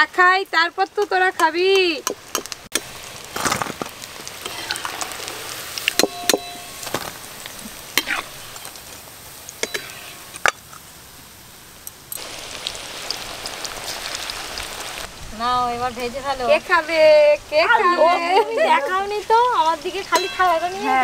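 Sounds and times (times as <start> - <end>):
oil sizzling: 0.0 - 21.0
steel bowls and utensils clinking: 5.8 - 7.1, 7.9 - 8.8, 9.6 - 10.8, 20.0 - 21.0.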